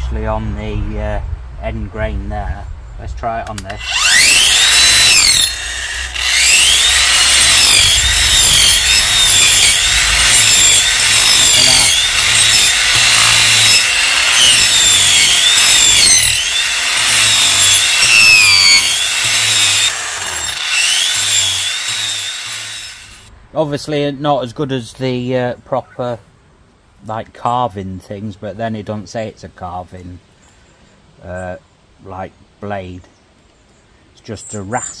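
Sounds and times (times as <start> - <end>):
angle grinder grinding wood: 3.6 - 23.3.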